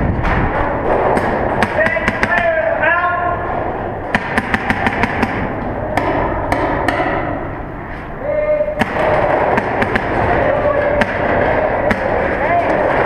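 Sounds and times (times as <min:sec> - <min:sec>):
paintball guns firing: 0:01.1 - 0:02.6, 0:04.1 - 0:07.2, 0:08.8 - 0:13.0.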